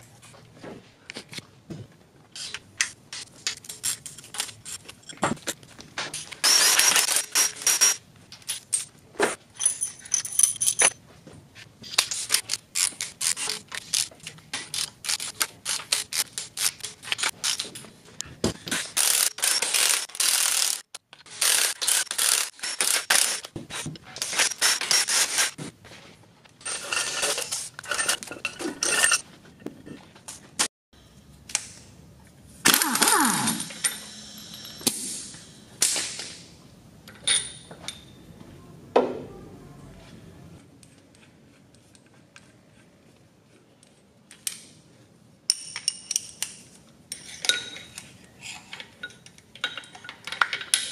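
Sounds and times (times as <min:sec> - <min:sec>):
metal parts clinking: 0:06.2 - 0:08.9, 0:09.5 - 0:11.0, 0:18.7 - 0:23.5, 0:26.6 - 0:29.3, 0:32.6 - 0:36.4
hand ratchet clicking: 0:19.0 - 0:23.5.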